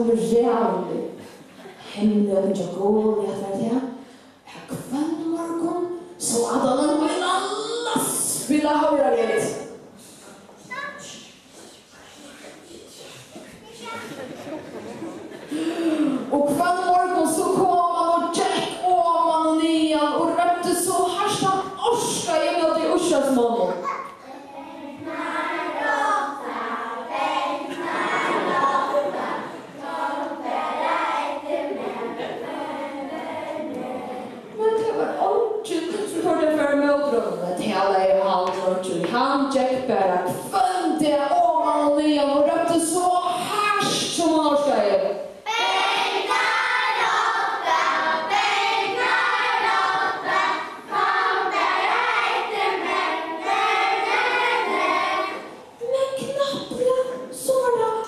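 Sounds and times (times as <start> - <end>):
children's choir singing: 24.7 - 34.6, 45.5 - 55.8.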